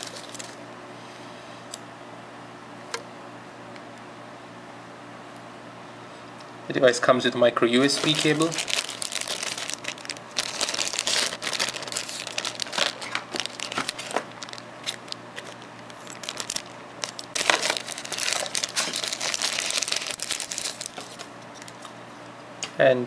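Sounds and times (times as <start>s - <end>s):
plastic bag crinkling: 0.0s - 0.6s, 7.7s - 21.9s.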